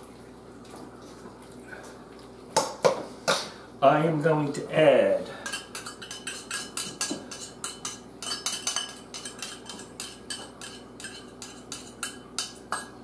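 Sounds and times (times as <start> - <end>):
metal spoon scraping copper cup: 5.5 - 12.8.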